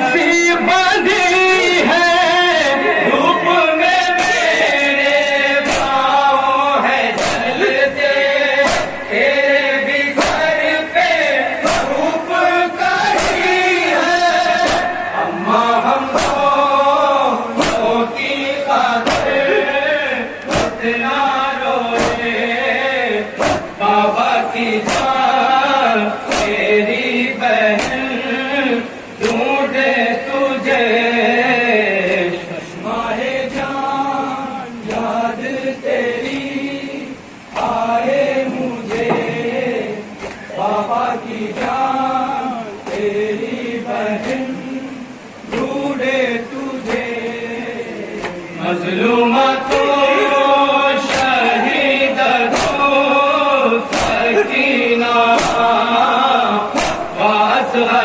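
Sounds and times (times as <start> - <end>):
men chanting a lament: 0.0 - 58.0
hands slapping chests: 7.2 - 7.5, 8.7 - 9.0, 10.2 - 10.5, 13.1 - 13.5, 14.6 - 14.9, 16.2 - 16.5, 17.6 - 17.9, 19.0 - 19.4, 20.4 - 20.8, 22.0 - 22.3, 23.4 - 23.8, 24.8 - 25.2, 26.3 - 26.6, 27.8 - 28.1, 40.2 - 40.4, 51.0 - 51.4, 52.5 - 52.8, 53.9 - 54.3, 55.4 - 55.7, 56.8 - 57.1.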